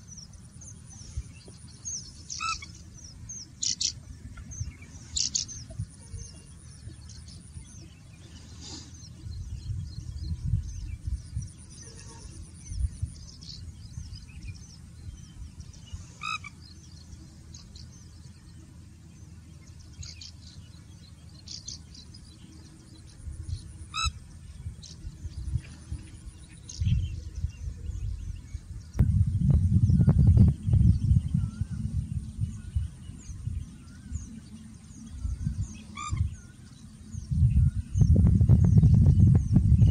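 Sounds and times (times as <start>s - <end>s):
low rumble: 24.5s - 39.9s.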